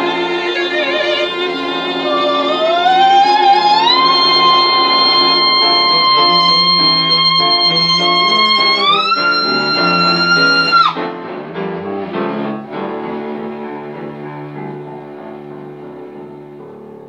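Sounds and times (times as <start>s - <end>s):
soprano singing high notes: 0.0s - 11.0s
bowed cello: 0.0s - 17.0s
piano: 0.0s - 17.0s.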